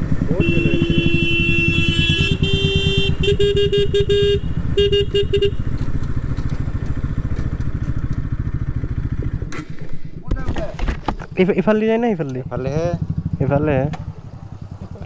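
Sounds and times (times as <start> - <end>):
motorcycle engine running: 0.0 - 10.3, 11.1 - 15.0
horn honking: 0.2 - 5.8.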